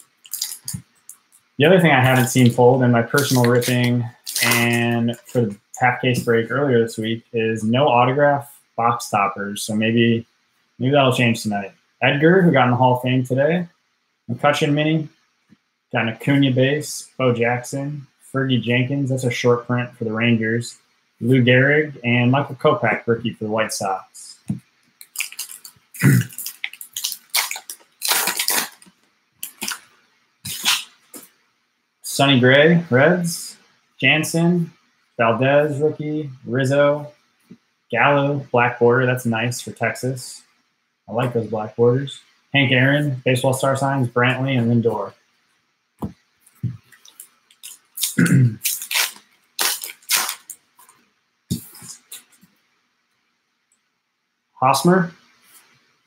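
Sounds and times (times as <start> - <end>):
wrappers tearing and crinkling: 0.2 - 0.8, 3.1 - 5.4, 25.0 - 29.9, 30.5 - 30.9, 46.9 - 50.6
cards shuffling: 2.0 - 5.4, 24.5 - 29.9, 30.5 - 31.3, 46.5 - 52.4
cards sliding and shuffling: 2.1 - 5.4, 26.5 - 31.4.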